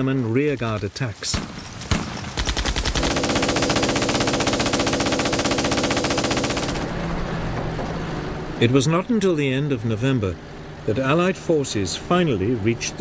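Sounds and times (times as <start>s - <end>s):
machine gun rapid burst: 1.3s - 6.9s.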